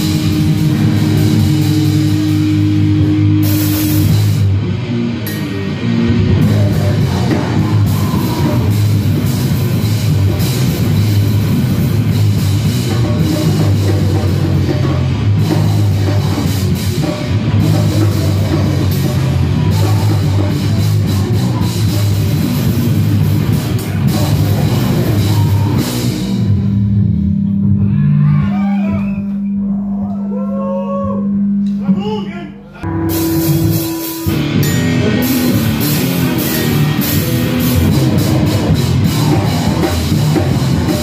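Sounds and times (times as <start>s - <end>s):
heavy distorted rock band: 0.0s - 29.9s, 32.8s - 41.0s
held low guitar note: 32.8s - 40.2s.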